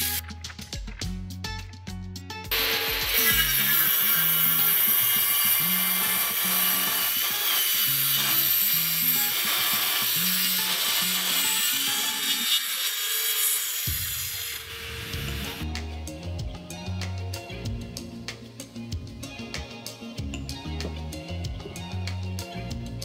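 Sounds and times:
table saw cutting wood: 0.0 - 0.2, 2.5 - 15.6.

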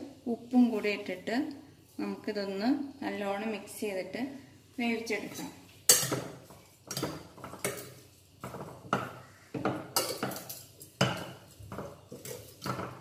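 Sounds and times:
metal spoon clinking on a pot: 5.9 - 6.3, 6.9 - 13.0.

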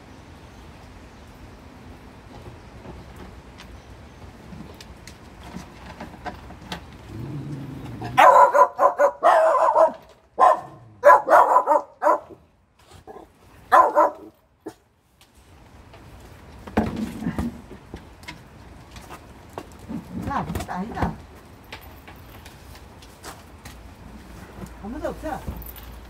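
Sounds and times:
puppy barking: 8.1 - 12.4, 13.1 - 14.8.

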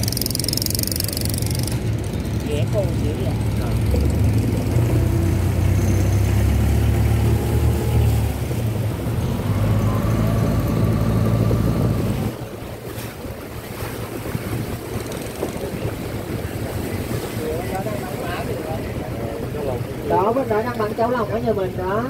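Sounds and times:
wind on microphone: 0.0 - 20.2
boat engine humming: 0.0 - 22.0
water washing: 0.0 - 22.0.

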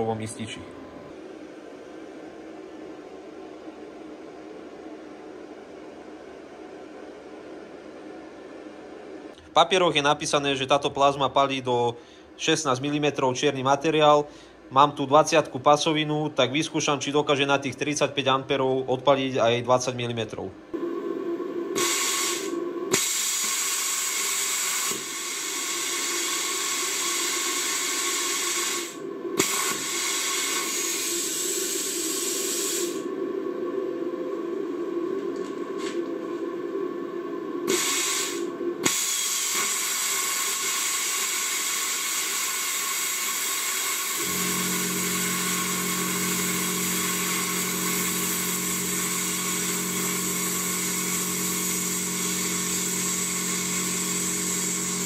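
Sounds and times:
steady low hum: 0.0 - 40.0
plasma cutter hissing: 21.8 - 33.1, 37.7 - 55.0.

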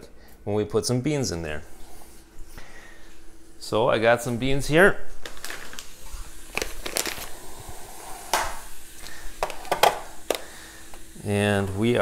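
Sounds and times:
bag crinkling and rustling: 5.1 - 10.5
coffee beans clicking: 6.5 - 7.3.

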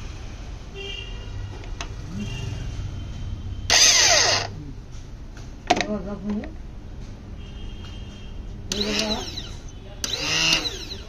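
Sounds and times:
starter motor whirring: 3.7 - 4.6, 8.7 - 11.0.

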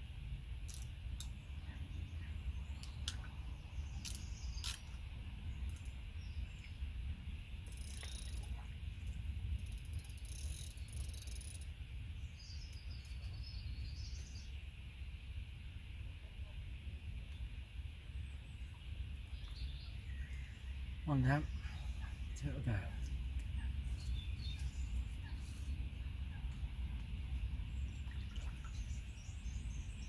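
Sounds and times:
fishing reel clicks: 0.7 - 1.3, 4.0 - 4.8, 7.6 - 8.5, 9.6 - 11.7
birds chirping: 0.7 - 9.2, 18.2 - 30.0
water sloshing around waders: 27.8 - 29.4.

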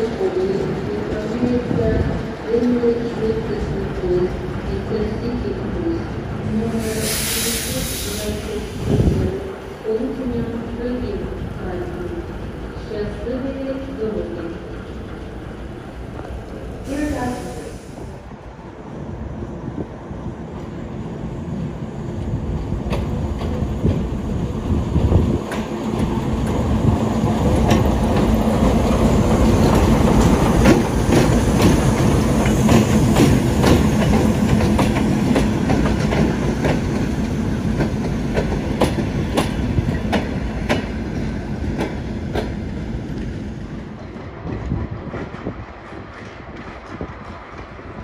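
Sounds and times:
diesel locomotive engine hum: 0.0 - 48.0
wheels clacking over rail joints: 27.4 - 40.9.

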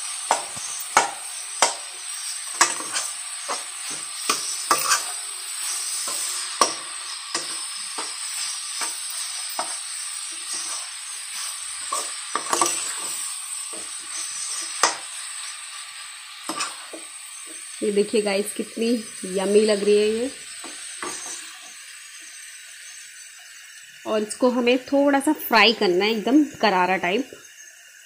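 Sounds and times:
food sizzling in oil: 0.0 - 28.0
spatula scraping a metal pan: 0.3 - 15.5, 16.4 - 17.6, 20.6 - 21.6.

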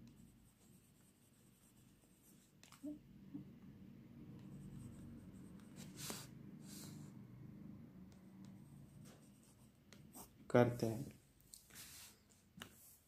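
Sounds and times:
low steady hum: 0.2 - 9.7.

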